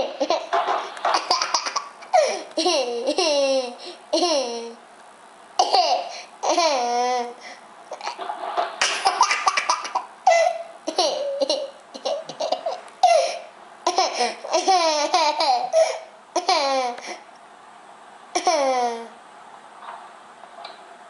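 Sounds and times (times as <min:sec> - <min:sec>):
toddler giggling: 0:01.2 - 0:04.8, 0:05.6 - 0:07.4, 0:08.9 - 0:17.2, 0:18.4 - 0:19.2.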